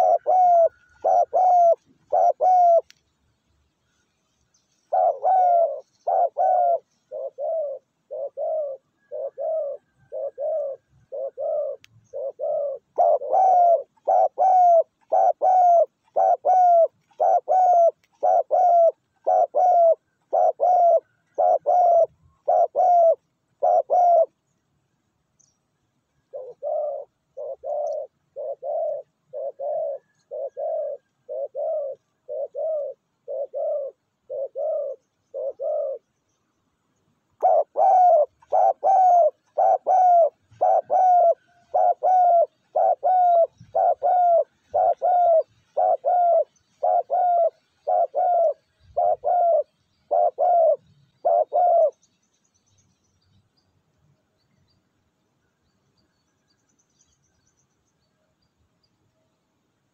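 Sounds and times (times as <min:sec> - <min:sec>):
dove cooing: 0:00.0 - 0:03.0, 0:04.7 - 0:24.6, 0:26.1 - 0:36.2, 0:37.2 - 0:52.1
small birds chirping: 0:00.0 - 0:59.4.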